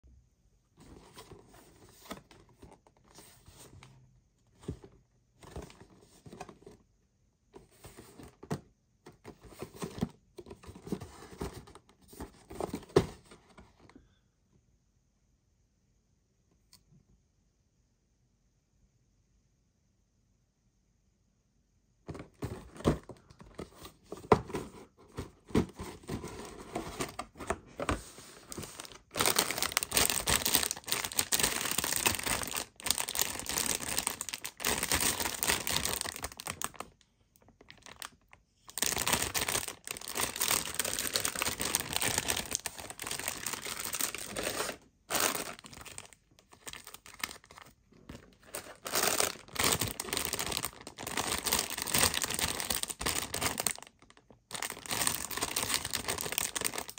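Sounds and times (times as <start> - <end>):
plastic bags crinkling: 28.4 - 37.0, 37.6 - 56.9.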